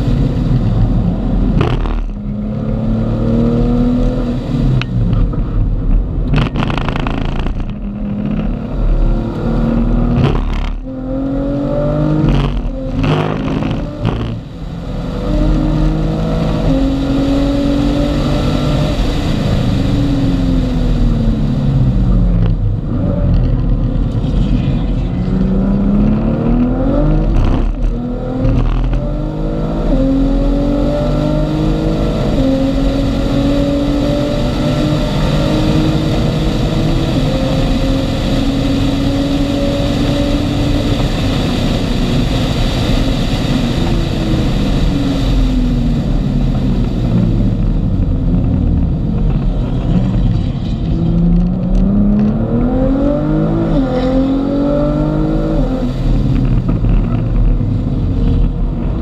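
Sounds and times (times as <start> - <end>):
car engine revving from inside cabin: 6.3 - 14.5, 49.8 - 57.6.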